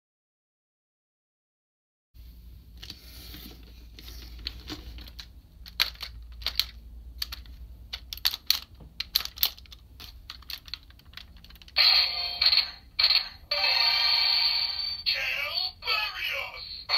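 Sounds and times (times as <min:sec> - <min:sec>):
toy robot joints clicking: 0:05.7 - 0:11.8.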